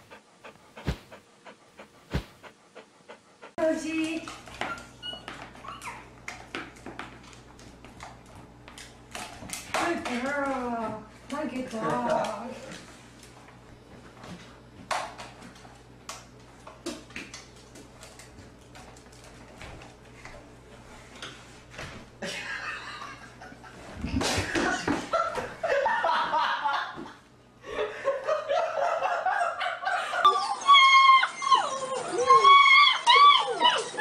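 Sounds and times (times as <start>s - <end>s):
people laughing: 22.2s - 27.1s
puppies whimpering and howling: 29.8s - 34.0s.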